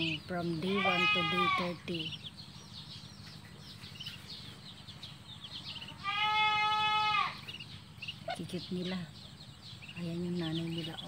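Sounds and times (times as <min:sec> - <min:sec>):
long animal call: 0:00.6 - 0:01.9, 0:05.7 - 0:07.5.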